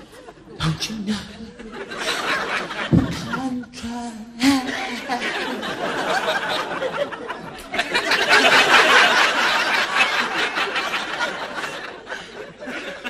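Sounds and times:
studio audience laughing: 0:01.5 - 0:03.5, 0:04.7 - 0:13.0.

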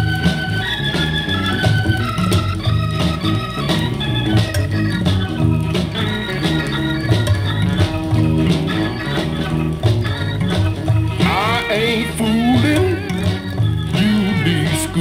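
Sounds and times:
rhythm and blues instrumental music: 0:00.0 - 0:15.0.

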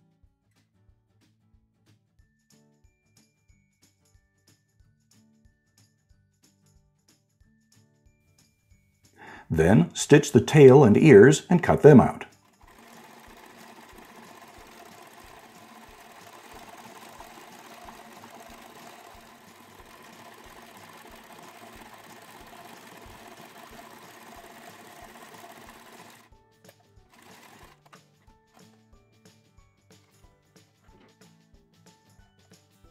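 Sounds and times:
electric sewing machine running: 0:11.7 - 0:26.3, 0:27.1 - 0:28.0.

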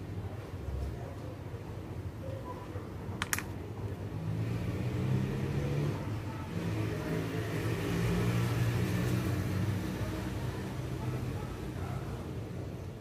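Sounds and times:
sharp clicks: 0:03.2 - 0:03.5.

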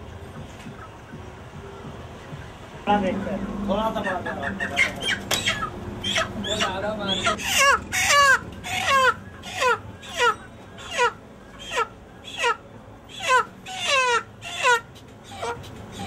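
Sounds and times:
chicken distress squawks: 0:04.0 - 0:16.0.

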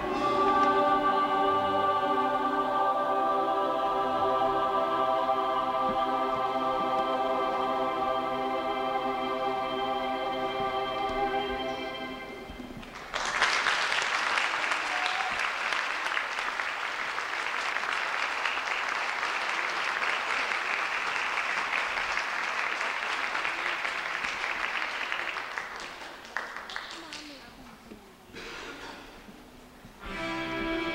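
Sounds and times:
audience applause: 0:12.8 - 0:27.4.

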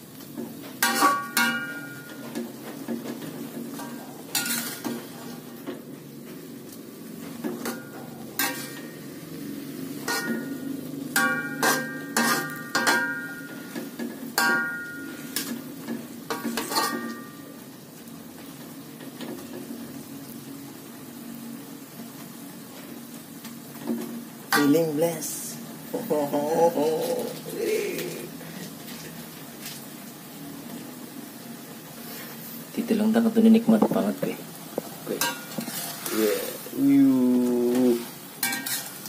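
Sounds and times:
low sizzle from pan: 0:00.0 - 0:39.0
metal spatula scraping wok: 0:00.7 - 0:05.7, 0:07.2 - 0:17.4, 0:35.0 - 0:36.7, 0:38.4 - 0:39.0.

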